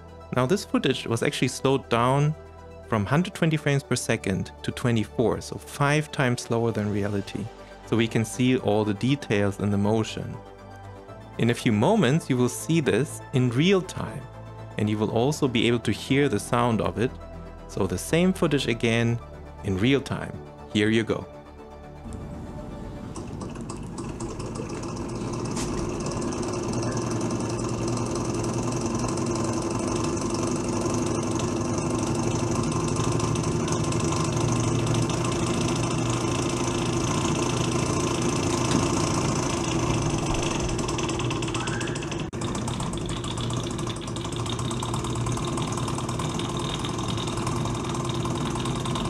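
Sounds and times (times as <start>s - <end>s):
model steam engine running: 23.0s - 49.0s.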